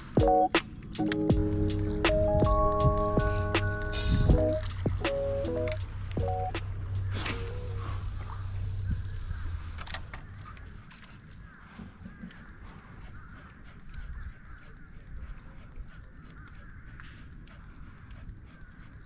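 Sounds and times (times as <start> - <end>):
sharp clicks: 0.0 - 7.8.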